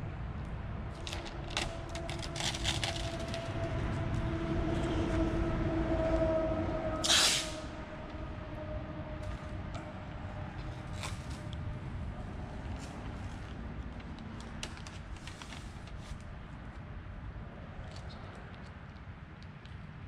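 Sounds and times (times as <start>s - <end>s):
paper crackling: 0.9s - 3.8s, 13.2s - 16.3s
tape ripping: 1.0s - 3.5s, 7.0s - 7.6s.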